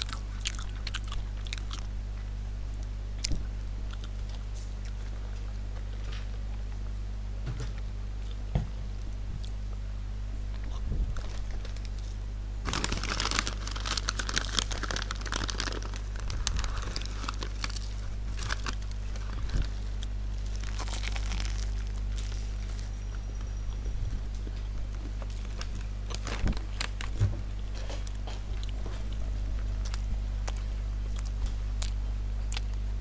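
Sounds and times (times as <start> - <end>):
steady low hum: 0.0 - 33.0
food bags crinkling and rustling: 11.0 - 23.0, 24.5 - 29.2.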